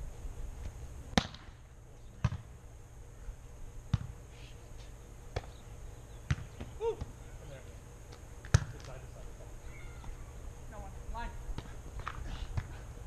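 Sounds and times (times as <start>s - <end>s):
volleyball slaps: 1.1s - 1.6s, 3.9s - 4.1s, 6.3s - 7.1s, 8.4s - 9.0s, 11.5s - 12.8s
person shouting: 6.8s - 7.1s.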